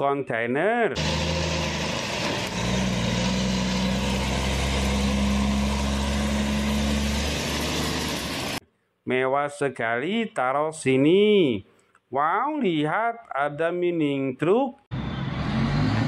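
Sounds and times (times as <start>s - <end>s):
truck diesel engine running: 1.0s - 8.6s.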